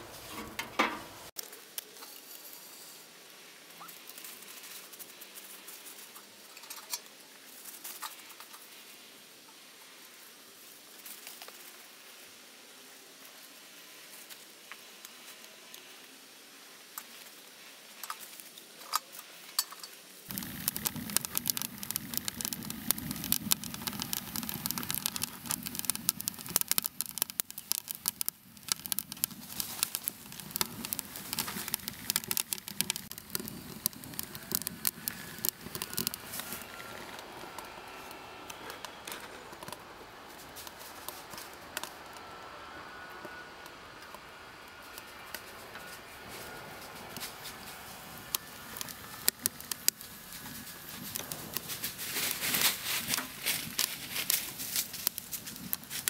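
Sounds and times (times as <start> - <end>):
wood fire crackling: 20.1 - 56.0.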